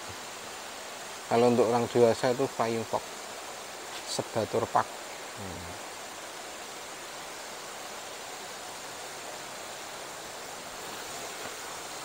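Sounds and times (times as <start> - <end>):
flowing water rushing: 0.0 - 12.0.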